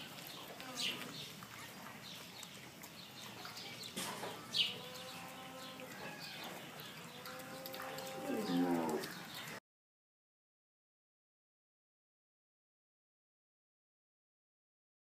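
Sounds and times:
small birds chirping: 0.0s - 9.6s
animals bleating: 4.4s - 9.2s
deep rough animal call: 7.1s - 9.3s.

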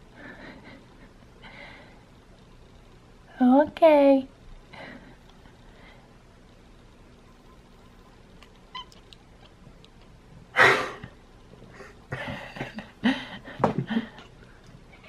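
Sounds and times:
cat meowing: 8.6s - 9.6s.

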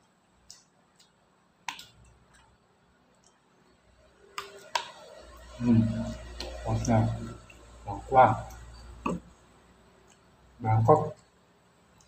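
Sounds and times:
person speaking: 5.5s - 9.3s, 10.6s - 11.3s.

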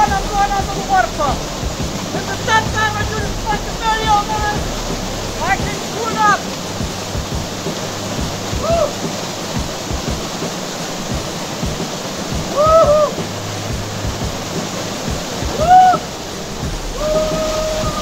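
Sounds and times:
waterfall rushing into pool: 0.0s - 18.0s
hooting calls: 16.8s - 18.0s.

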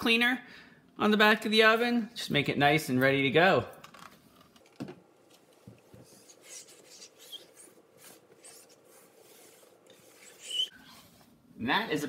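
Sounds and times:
cloth rubbing on glass: 5.8s - 11.4s.

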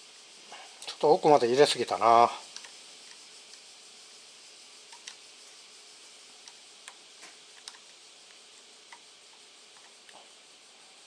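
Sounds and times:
steady high hiss: 0.0s - 11.0s.

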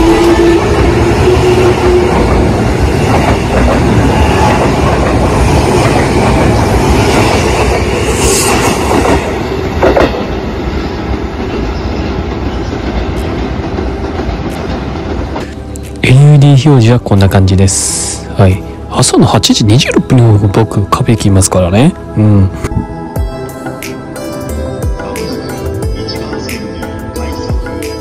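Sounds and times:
train wheels clattering on rails: 0.0s - 15.8s.

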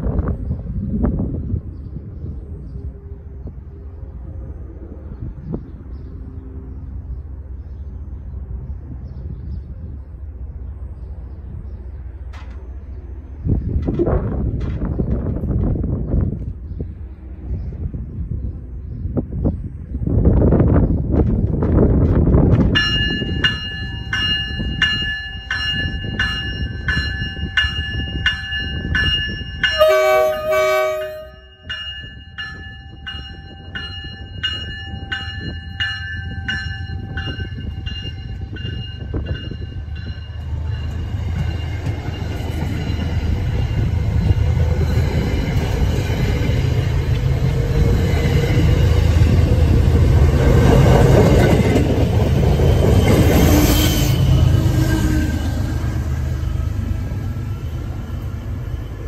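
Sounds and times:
diesel locomotive: 0.0s - 59.0s
train coaches rumbling past: 0.0s - 59.0s
train bell ringing: 22.8s - 46.9s
train horn blast: 29.7s - 31.7s.

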